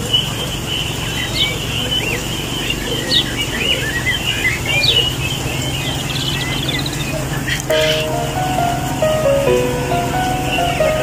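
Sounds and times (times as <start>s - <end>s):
quail chirping and calling: 7.8s - 8.1s.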